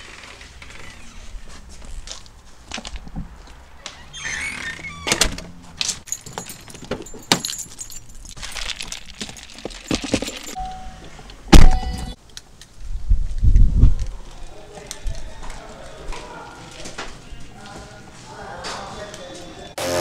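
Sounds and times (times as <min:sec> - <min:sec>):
keys jangling: 0:06.0 - 0:10.7.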